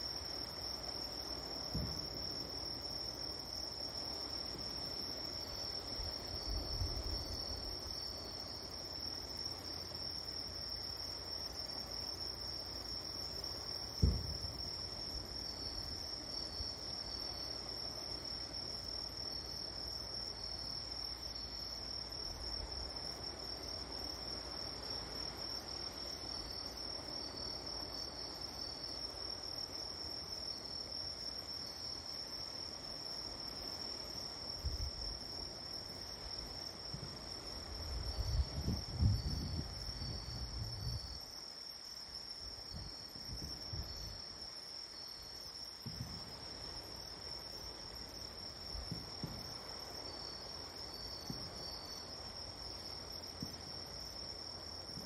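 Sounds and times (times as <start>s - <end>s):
crickets chirring: 0.0s - 55.0s
low thump: 1.7s - 2.1s, 14.0s - 14.6s.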